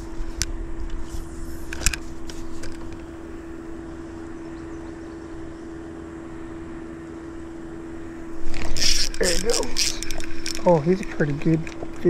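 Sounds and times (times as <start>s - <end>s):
small electric motor humming: 6.2s - 12.0s.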